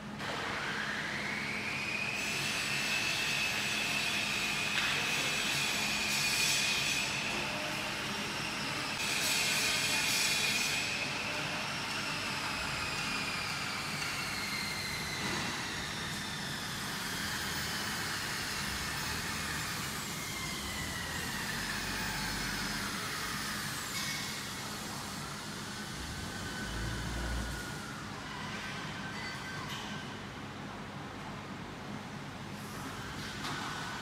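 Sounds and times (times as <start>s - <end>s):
factory hall background noise: 0.0s - 34.0s.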